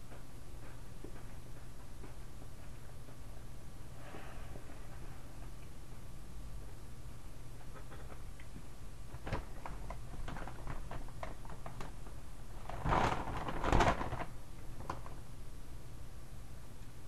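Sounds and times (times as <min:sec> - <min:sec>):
chip bag crinkling: 0:09.1 - 0:15.2.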